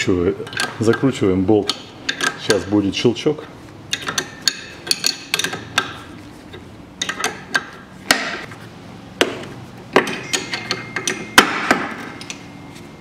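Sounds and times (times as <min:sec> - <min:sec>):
metal tools clicking and knocking: 0:00.4 - 0:02.7, 0:03.9 - 0:06.0, 0:07.0 - 0:08.5, 0:09.9 - 0:12.4.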